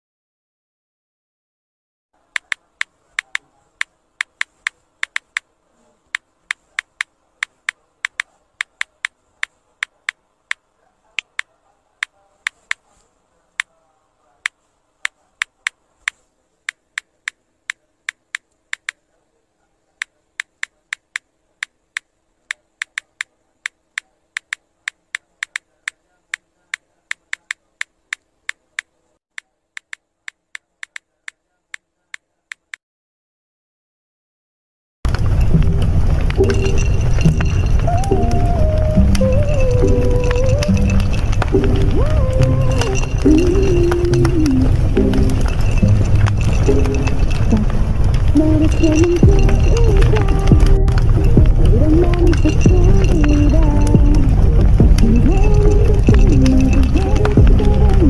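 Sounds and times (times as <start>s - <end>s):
faint steady hum: 2.2s - 32.7s, 35.1s - 58.0s
keyboard key clicks: 2.4s - 5.5s, 18.1s - 19.0s, 22.0s - 23.3s, 24.0s - 26.4s, 29.8s - 31.4s.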